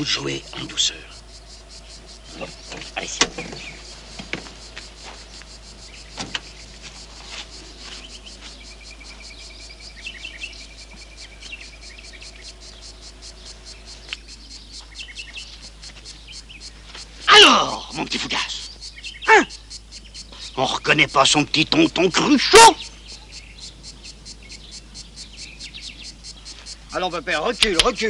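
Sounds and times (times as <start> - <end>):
insects chirping: 0.0 - 28.0
sharp knocks: 2.4 - 4.5, 6.1 - 6.5.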